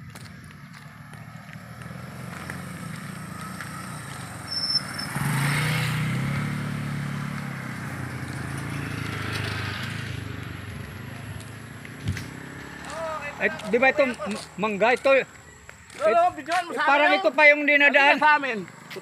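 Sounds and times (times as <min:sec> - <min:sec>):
motor scooter passing: 0:00.0 - 0:16.0
small motorcycles passing: 0:00.0 - 0:19.0.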